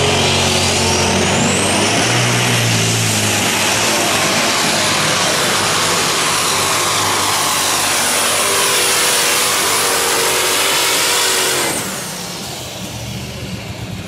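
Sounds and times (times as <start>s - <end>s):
high turbo whistle: 0.0s - 12.4s
tractor engine at full power: 0.0s - 14.0s.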